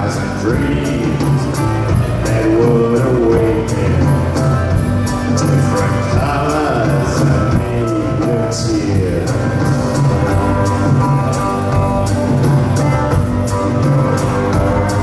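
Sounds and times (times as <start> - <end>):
man singing: 0.0 - 10.3
drums keeping a steady beat: 0.0 - 15.0.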